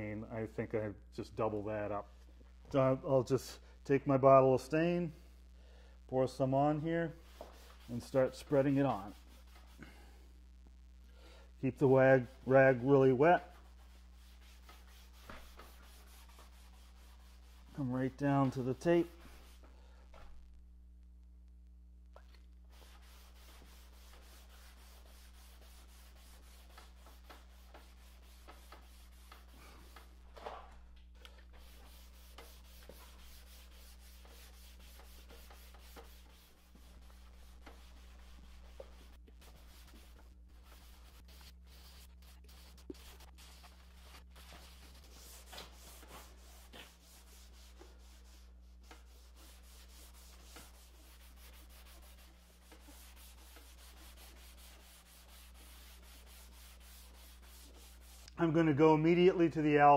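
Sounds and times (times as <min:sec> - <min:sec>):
cloth rag rubbing on wood: 0:06.8 - 0:10.0, 0:11.7 - 0:20.4, 0:22.7 - 0:30.6, 0:31.4 - 0:58.3.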